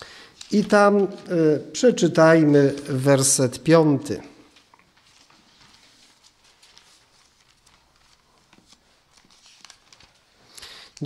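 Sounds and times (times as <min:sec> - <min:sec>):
faint soft clicks and rustles: 0:04.5 - 0:11.0.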